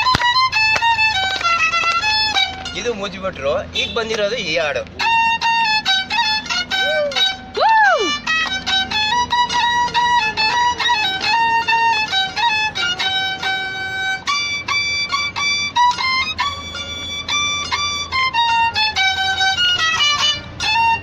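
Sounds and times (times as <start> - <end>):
fiddle playing lively melody: 0.0 - 21.0.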